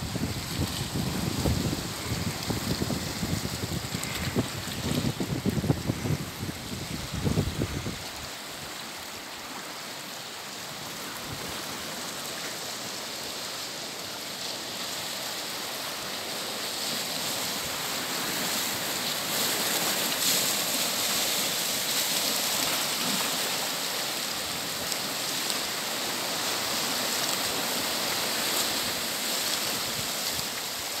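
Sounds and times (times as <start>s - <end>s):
wind buffeting microphone: 0.0s - 8.2s
surf washing around rocks: 0.0s - 31.0s.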